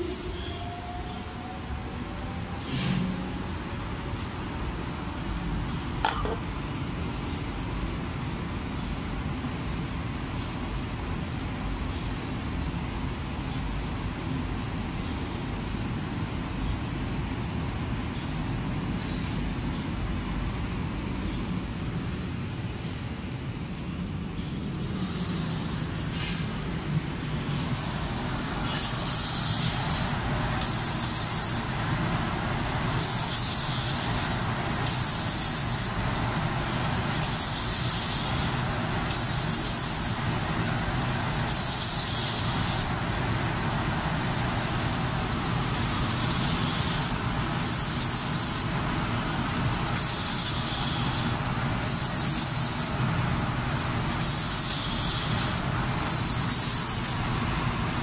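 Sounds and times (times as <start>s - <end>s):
steady machine noise: 24.6s - 58.0s
spray gun hissing: 27.6s - 31.8s, 32.9s - 36.0s, 37.2s - 40.3s, 41.5s - 42.9s, 46.1s - 48.7s, 50.0s - 52.9s, 54.2s - 57.2s.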